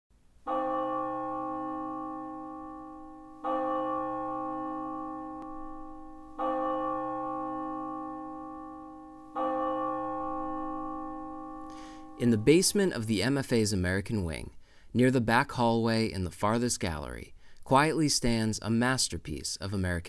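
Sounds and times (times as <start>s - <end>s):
bell tolling: 0.5s - 13.6s.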